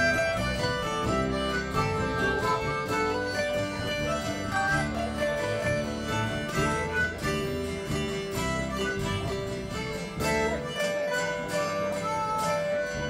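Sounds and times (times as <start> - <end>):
accordion: 0.0 - 13.0
acoustic guitar: 0.0 - 13.0
electric bass: 0.0 - 13.0
harmonica: 0.0 - 13.0.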